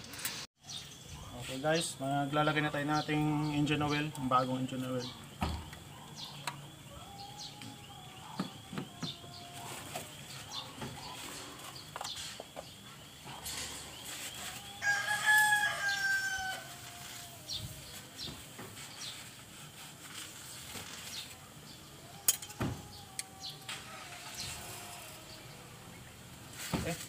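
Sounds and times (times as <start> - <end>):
long drawn-out bird call: 20.8 - 26.1.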